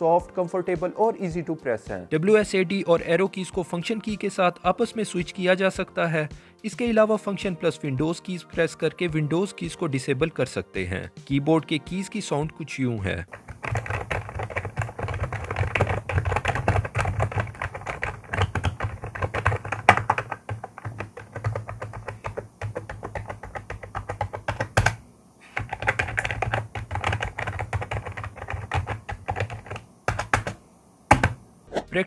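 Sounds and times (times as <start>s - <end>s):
fast keyboard typing: 13.3s - 31.4s.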